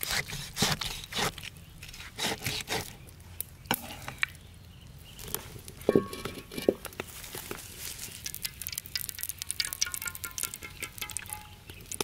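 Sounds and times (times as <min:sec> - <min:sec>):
fire crackling: 0:05.6 - 0:12.0.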